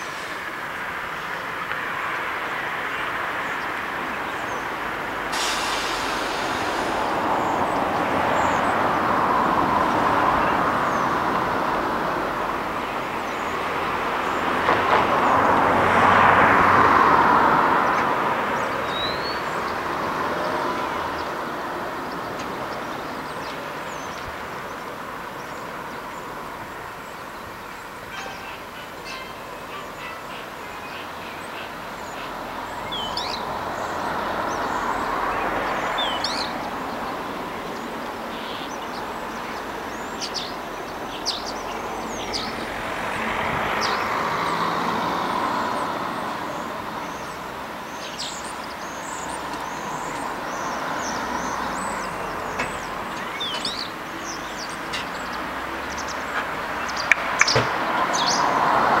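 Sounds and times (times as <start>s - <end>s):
rushing noise: 4.7s - 21.8s.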